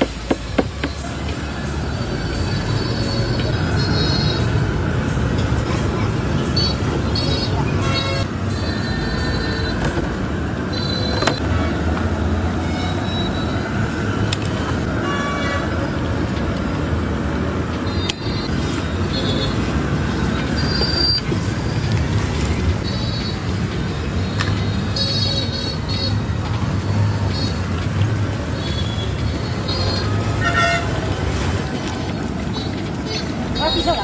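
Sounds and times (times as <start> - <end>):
traffic engines rumbling: 0.0 - 34.0
vehicle horn toots: 28.6 - 31.0.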